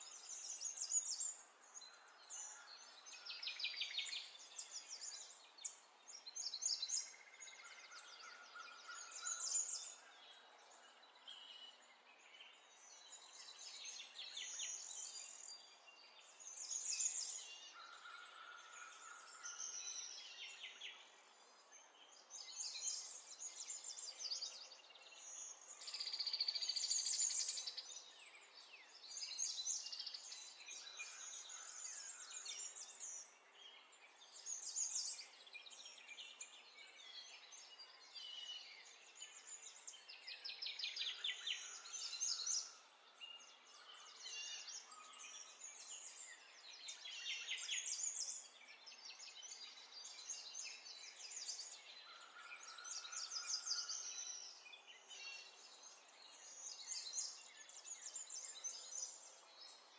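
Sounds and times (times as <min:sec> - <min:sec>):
birds chirping and trilling: 0:22.0 - 0:59.9.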